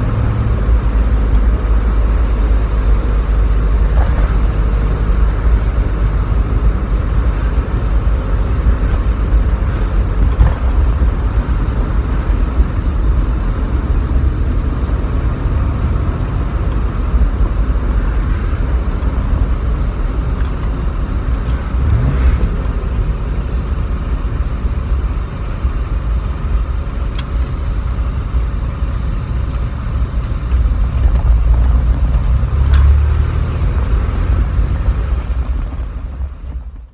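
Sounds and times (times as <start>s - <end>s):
car engine and road noise: 0.0s - 36.9s.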